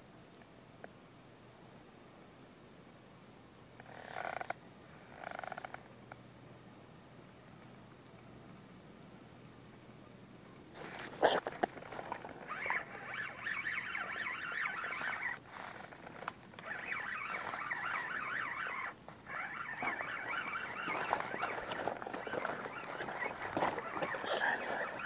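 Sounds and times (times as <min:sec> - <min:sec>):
spinning reel whirring rattle: 0:11.8 - 0:25.0.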